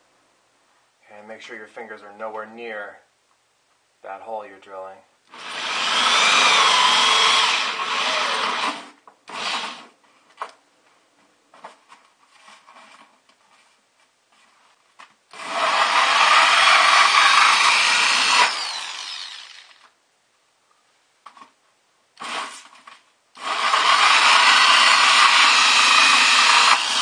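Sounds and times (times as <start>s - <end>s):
drill hole saw cutting plastic: 5.3s - 9.9s, 15.3s - 19.9s, 22.2s - 22.7s, 23.4s - 27.0s.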